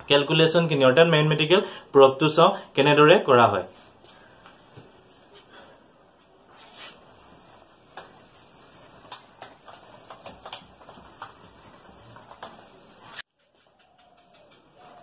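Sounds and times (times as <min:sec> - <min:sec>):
duster wiping whiteboard: 0:06.2 - 0:13.7.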